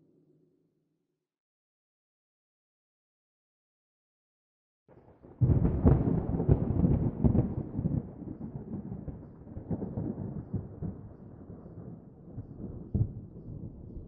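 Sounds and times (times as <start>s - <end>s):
thunderclap rumbling: 5.4s - 14.0s.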